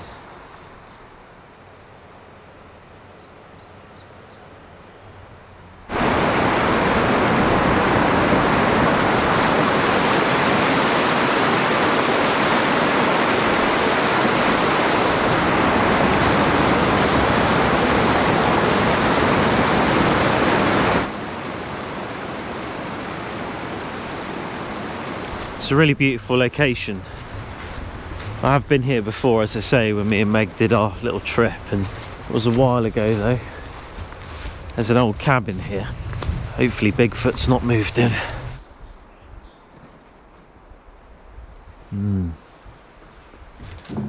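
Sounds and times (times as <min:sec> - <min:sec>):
quiet outdoor ambience: 0:00.0 - 0:44.0
water rushing over rocks: 0:05.9 - 0:25.8.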